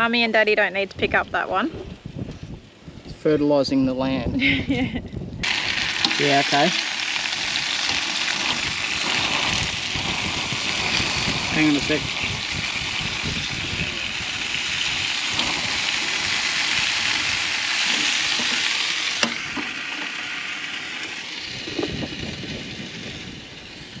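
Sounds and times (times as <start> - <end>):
kebabs sizzling on hot plate: 5.4 - 24.0.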